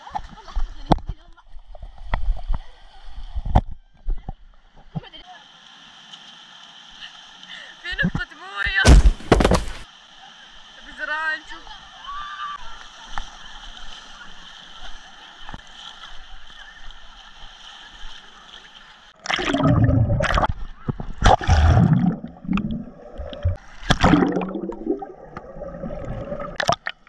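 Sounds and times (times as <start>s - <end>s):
pool water splashing and lapping: 4.6s - 8.8s, 9.6s - 27.0s
muffled underwater rumbling: 19.2s - 26.6s
gurgling bubbles: 19.2s - 27.0s.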